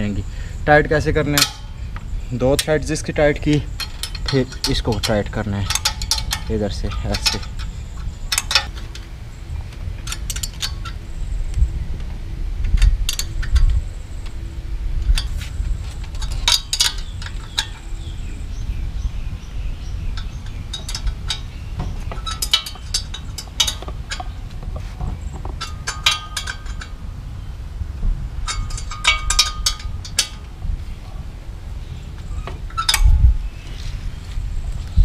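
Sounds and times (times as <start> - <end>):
metal tools clicking and clinking: 1.2 - 9.1, 10.0 - 11.0, 12.8 - 14.4, 15.1 - 18.2, 20.2 - 24.5, 25.4 - 27.0, 28.4 - 30.5, 32.4 - 33.2.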